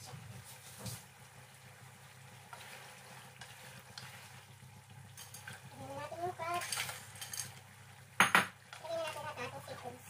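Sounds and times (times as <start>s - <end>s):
seafood sizzling in a frying pan: 0.0s - 10.0s
wooden spatula scraping pan: 2.5s - 4.5s.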